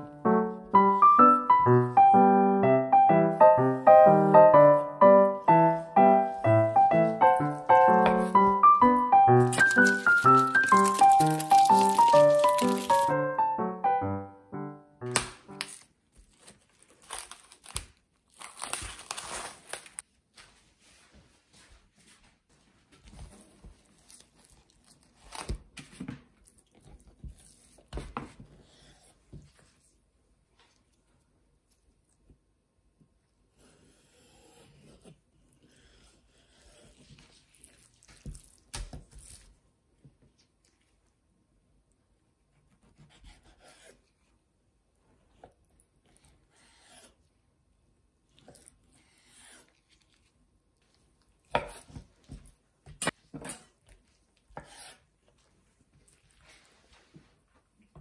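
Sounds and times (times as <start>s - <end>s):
knife slicing fish: 42.7s - 44.0s.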